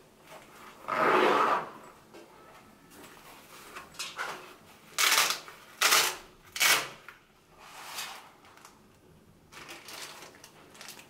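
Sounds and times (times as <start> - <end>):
velcro ripping apart: 5.0 - 7.1.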